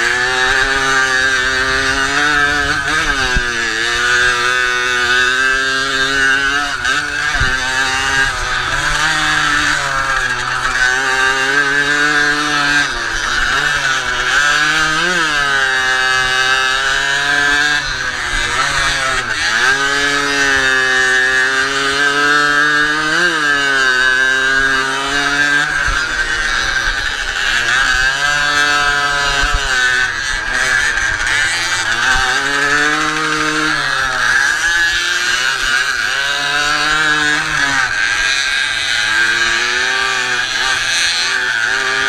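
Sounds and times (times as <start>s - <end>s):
moped engine revving: 0.0s - 42.0s.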